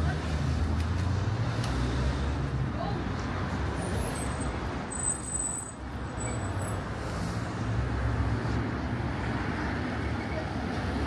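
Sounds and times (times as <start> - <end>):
traffic hum: 0.0 - 11.0
vehicle passing close by: 3.7 - 8.6
thin high squeal: 3.9 - 8.6.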